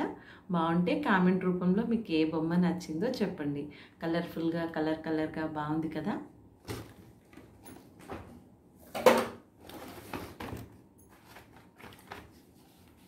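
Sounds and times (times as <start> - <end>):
packaging rustling: 9.6 - 13.0.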